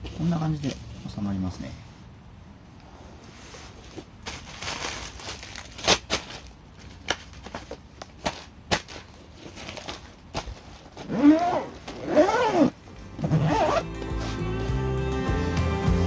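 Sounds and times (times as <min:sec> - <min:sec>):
zipper pulled shut: 0:11.0 - 0:14.4
music: 0:12.9 - 0:16.0.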